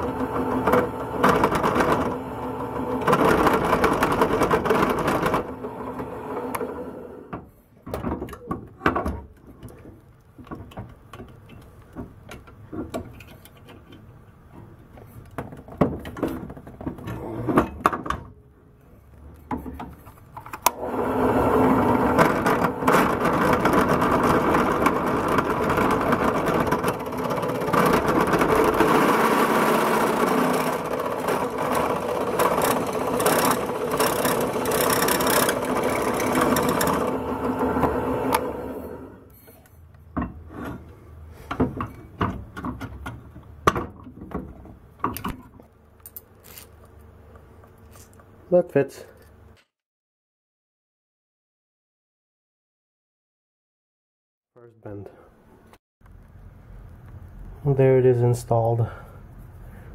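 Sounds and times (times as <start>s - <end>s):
drill press drilling metal: 20.8s - 39.2s.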